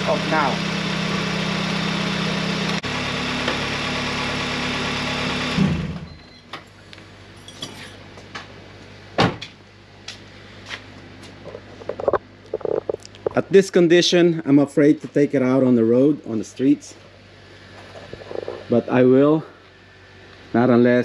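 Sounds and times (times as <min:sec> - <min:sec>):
car engine idling: 0:00.0 - 0:05.9.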